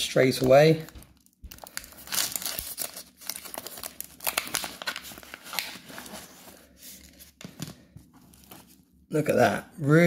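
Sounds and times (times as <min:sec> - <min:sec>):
plastic bag crinkling: 0:00.4 - 0:06.2.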